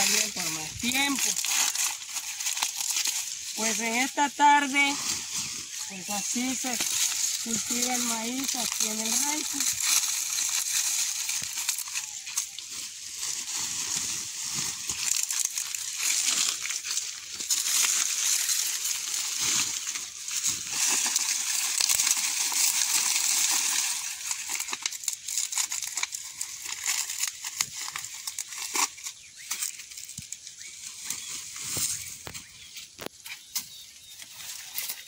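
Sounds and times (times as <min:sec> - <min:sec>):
dry corn husks rustling and crackling: 0:00.0 - 0:35.0.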